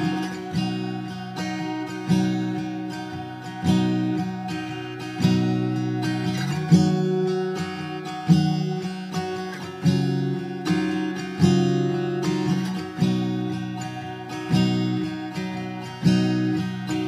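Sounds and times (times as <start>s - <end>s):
acoustic guitar chords ringing: 0.0s - 17.0s.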